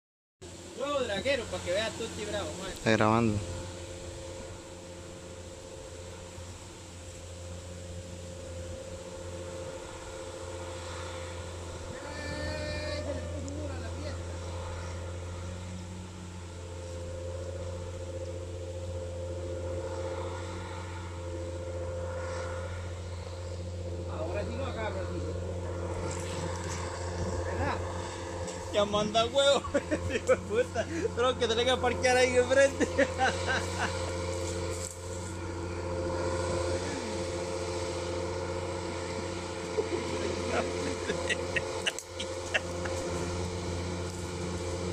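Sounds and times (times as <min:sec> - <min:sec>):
tractor diesel engine under load: 0:00.6 - 0:44.9.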